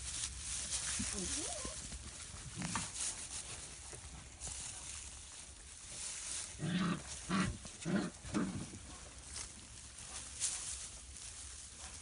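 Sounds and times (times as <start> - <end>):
faint rustling of straw: 0.0 - 12.0
puppy play growls: 2.4 - 3.0, 6.5 - 8.9.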